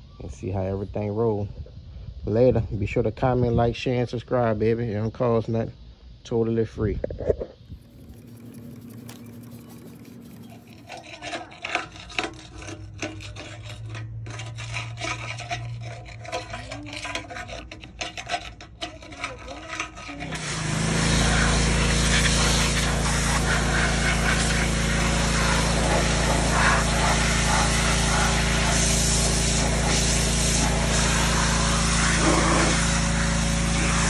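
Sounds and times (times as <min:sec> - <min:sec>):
pressure washer spraying water: 0:07.8 - 0:12.0, 0:19.2 - 0:34.0
wire brush scraping metal: 0:07.8 - 0:34.0.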